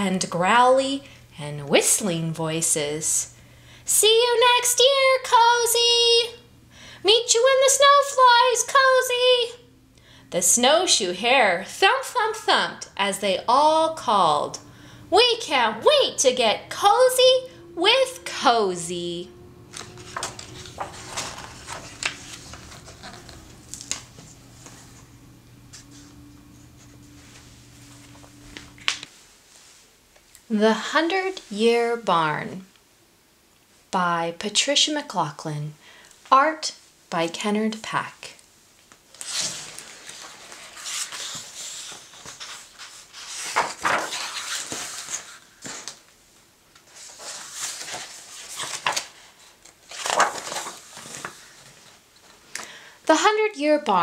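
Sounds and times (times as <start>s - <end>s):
faint steady hum: 0.0s - 54.0s
book pages turning: 19.6s - 29.1s, 39.1s - 46.1s, 46.8s - 52.0s
paper rustling: 19.7s - 25.0s, 39.1s - 46.1s, 46.8s - 52.0s.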